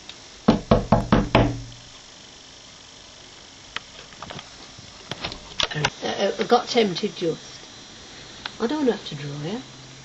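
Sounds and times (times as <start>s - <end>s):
quick knocks: 0.5s - 1.8s.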